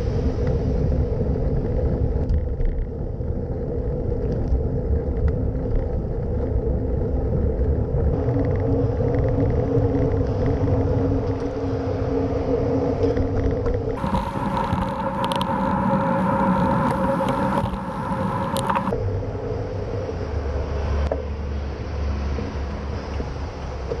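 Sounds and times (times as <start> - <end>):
wind noise on microphone: 0.0 - 24.0
steady hum: 7.2 - 20.6
road traffic noise: 8.1 - 24.0.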